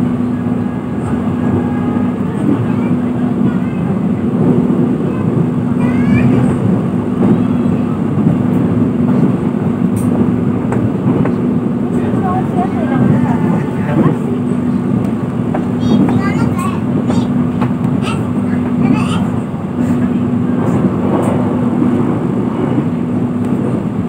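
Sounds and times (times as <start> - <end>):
train coach running noise: 0.0 - 24.0.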